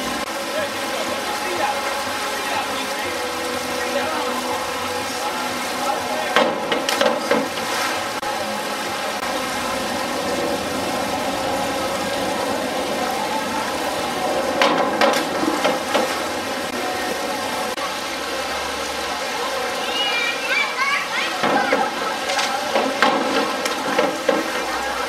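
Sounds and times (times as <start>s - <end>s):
diving board knocking: 6.2s - 8.0s, 14.4s - 16.4s, 22.7s - 24.7s.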